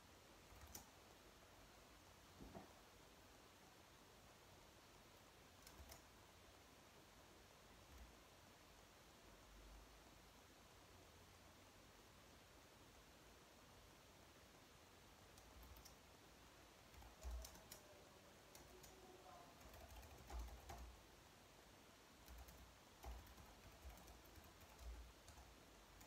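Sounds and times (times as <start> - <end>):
keyboard typing: 0.5 - 0.9, 5.6 - 6.1, 15.3 - 16.0, 16.9 - 21.0, 22.2 - 26.0.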